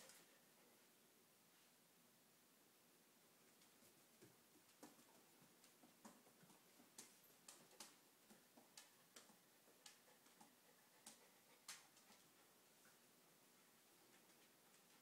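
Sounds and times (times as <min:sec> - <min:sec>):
dog claws clicking on floor: 0:04.2 - 0:12.2.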